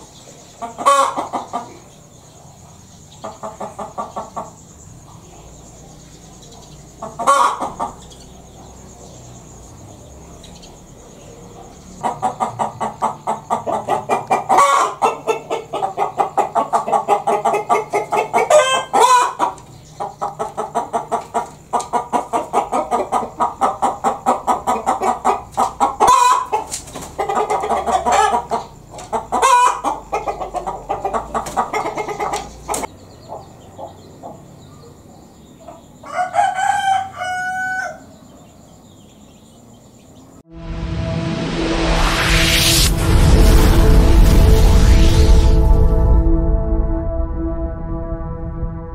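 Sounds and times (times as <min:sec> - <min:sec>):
hen cackling: 0:00.0 - 0:01.9, 0:03.2 - 0:04.6, 0:07.0 - 0:08.2, 0:11.5 - 0:34.5.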